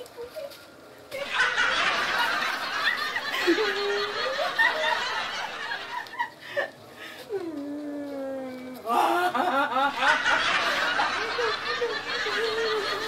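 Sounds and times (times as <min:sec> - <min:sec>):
burst of laughter: 0:01.2 - 0:06.3, 0:08.9 - 0:13.0.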